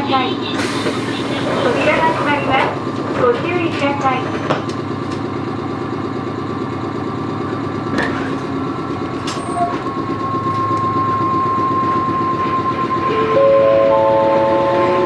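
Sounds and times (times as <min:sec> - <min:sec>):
train rumbling: 0:00.0 - 0:15.0
high-pitched tone: 0:09.4 - 0:15.0.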